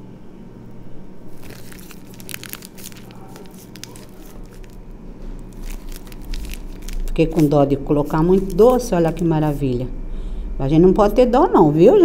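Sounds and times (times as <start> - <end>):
plastic piping bag crinkling: 1.3 - 9.8.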